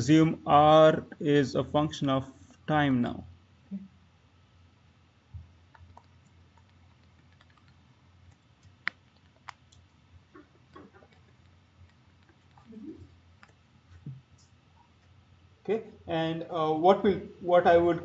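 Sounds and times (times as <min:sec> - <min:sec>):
low steady hum: 0:00.0 - 0:18.0
stylus tapping on tablet screen: 0:05.4 - 0:12.8, 0:13.4 - 0:14.3.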